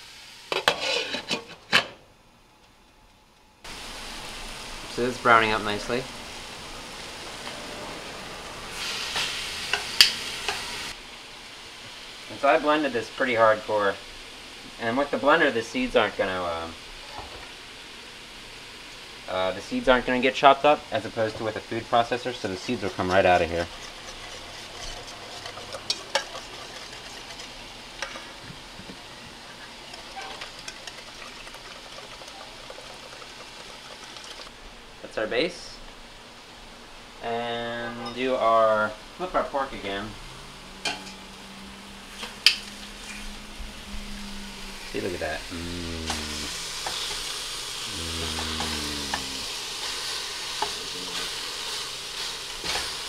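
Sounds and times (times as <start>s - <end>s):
meat sizzling in a pan: 8.7s - 34.5s, 44.2s - 53.0s
whisk scraping through mesh strainer: 22.5s - 27.6s
low hum: 40.2s - 46.9s.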